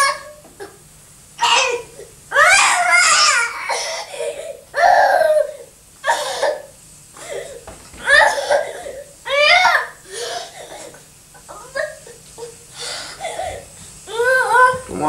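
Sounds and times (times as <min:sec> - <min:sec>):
toddler crying: 0:00.0 - 0:00.4, 0:01.4 - 0:14.9.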